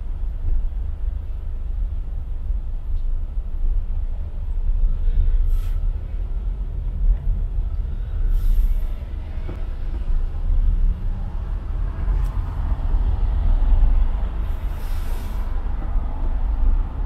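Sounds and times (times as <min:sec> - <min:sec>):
car engine and road rumble: 0:00.0 - 0:17.0
short hisses: 0:05.5 - 0:05.9, 0:08.3 - 0:08.9, 0:14.4 - 0:15.6.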